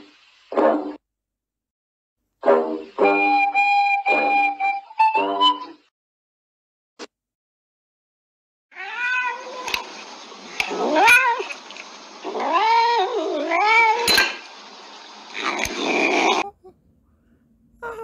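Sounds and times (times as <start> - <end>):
cat yowling: 8.7 - 9.8, 10.6 - 11.6, 12.2 - 14.2.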